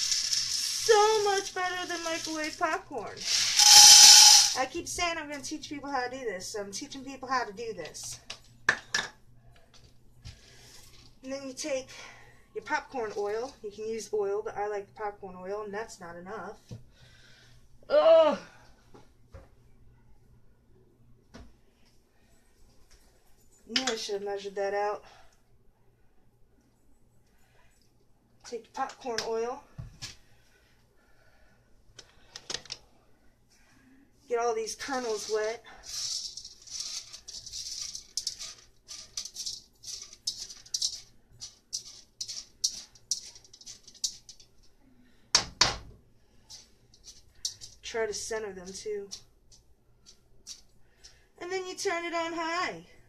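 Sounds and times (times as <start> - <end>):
popcorn kernels rattling in pan: 0.0 - 5.4, 34.6 - 44.8, 46.4 - 51.2
faint low hum: 3.9 - 51.7.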